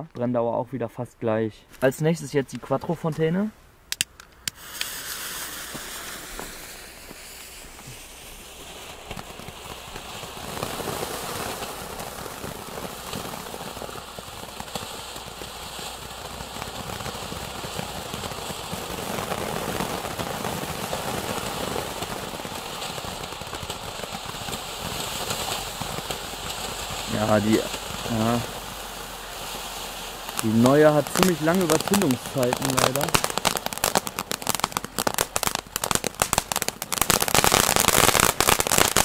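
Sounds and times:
firework fountain hissing and crackling: 3.9 - 39.0
fuse fizzing: 22.0 - 36.9.

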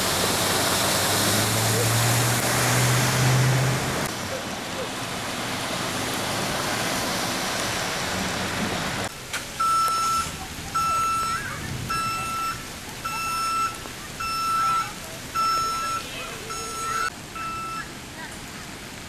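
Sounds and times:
tyres splashing through water: 0.0 - 19.0
repeating electronic beep: 9.6 - 17.9.

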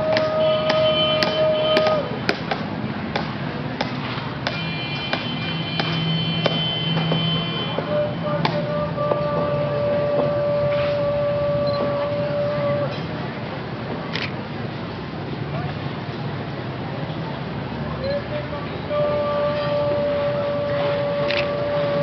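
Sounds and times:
long held brass notes: 18.9 - 22.0.

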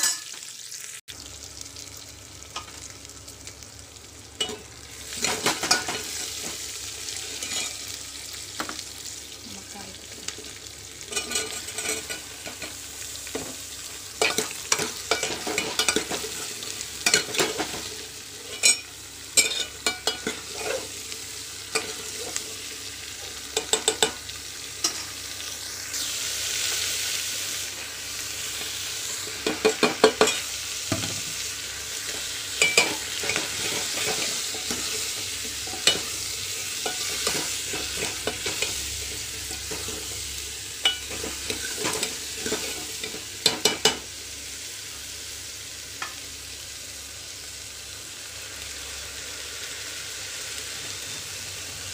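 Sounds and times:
food sizzling in hot oil: 0.0 - 51.9
steel spoon scraping a pot: 7.2 - 7.8.

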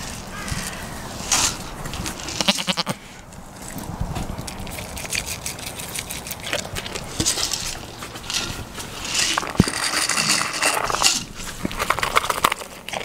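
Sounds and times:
goat bleating: 2.3 - 3.0
rustling and scuffing: 7.0 - 12.3.

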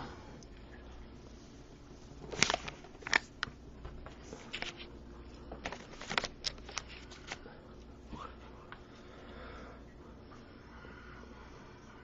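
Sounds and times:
packaging crinkling: 2.2 - 3.6, 5.6 - 7.5.

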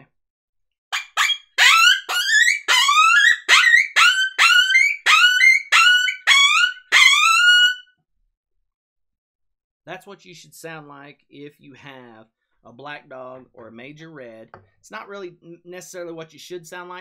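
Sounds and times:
predator call yelping cries: 1.1 - 7.8.

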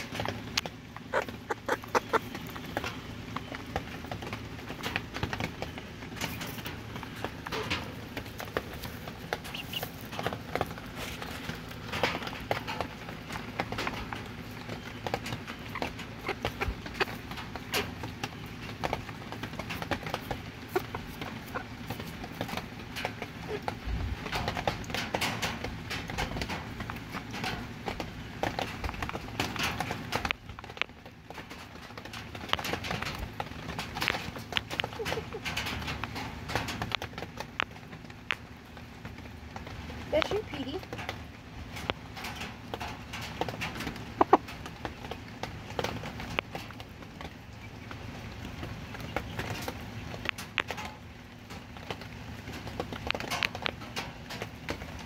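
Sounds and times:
rooster pecking at a phone: 0.0 - 14.4
low steady rumble: 0.0 - 55.0.

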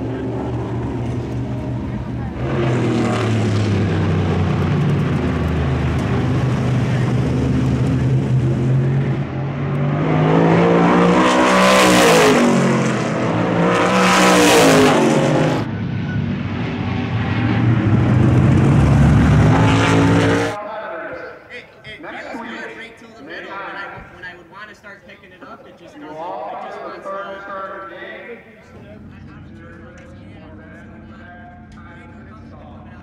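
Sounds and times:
race car engine running: 0.0 - 20.6, 28.8 - 33.0
race cars passing at speed: 0.0 - 20.6.

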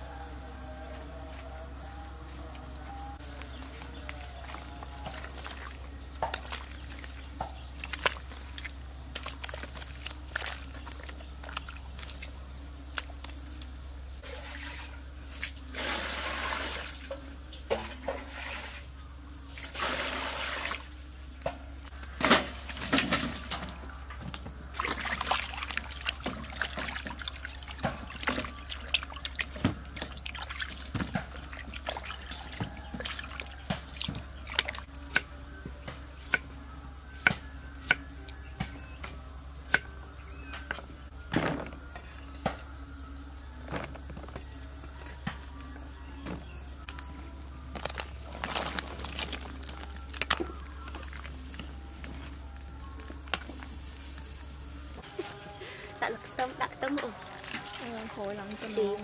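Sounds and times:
water splashing in a metal basin: 3.9 - 13.6, 14.2 - 18.8, 19.6 - 20.9, 22.2 - 35.0, 56.0 - 59.0.

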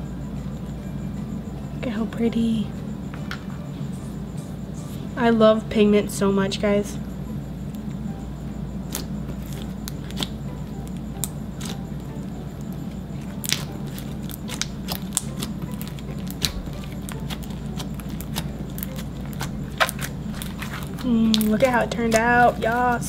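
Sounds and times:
slime clicking and popping: 8.9 - 11.8, 13.3 - 22.8.

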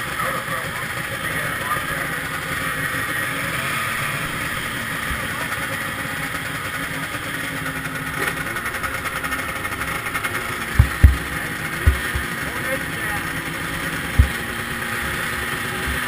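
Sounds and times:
snowmobile engines idling: 0.0 - 16.0
loud thump: 10.8 - 12.3, 14.2 - 14.7.

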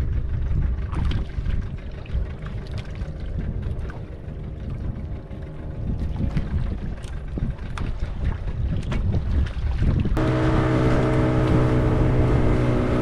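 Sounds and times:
boat engine hum: 0.0 - 13.0
water splashes: 0.8 - 13.0
water rushing: 10.2 - 13.0.

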